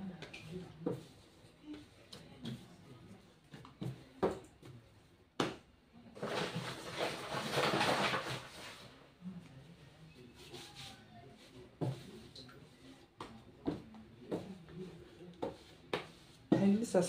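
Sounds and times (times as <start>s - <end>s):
dough thumping on a board: 5.4s - 5.7s
rustling and scraping: 6.2s - 9.0s.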